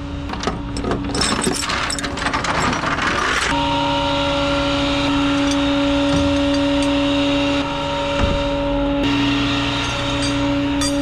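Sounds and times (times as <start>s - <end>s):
machine hum: 0.0s - 11.0s
chain rattling on metal deck: 0.7s - 3.5s.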